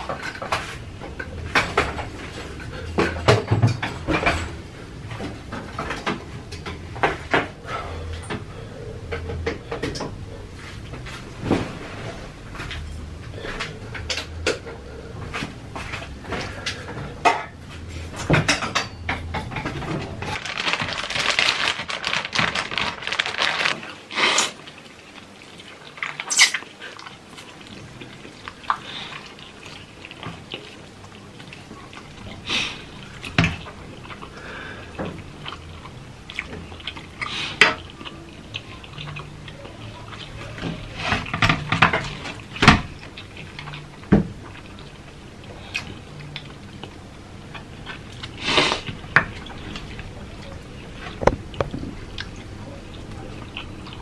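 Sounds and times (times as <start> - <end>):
noodles slurped and chewed: 20.2 - 54.0.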